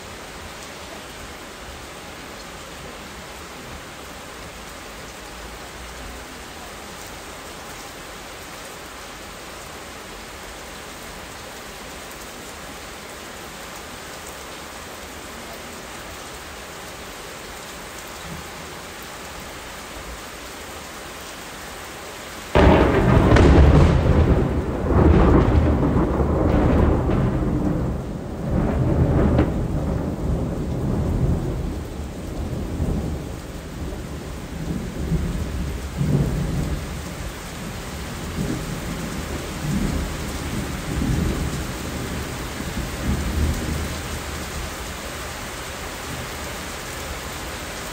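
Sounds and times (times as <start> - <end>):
rain hissing: 0.0 - 47.9
low thunder rumble: 22.6 - 44.6.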